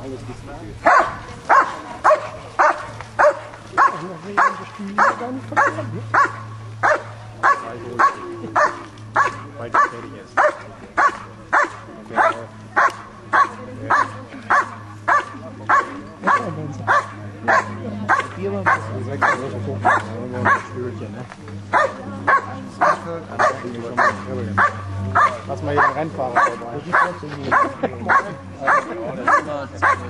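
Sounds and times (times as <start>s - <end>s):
dog barking rhythmically: 0.8s - 20.7s, 21.7s - 30.0s.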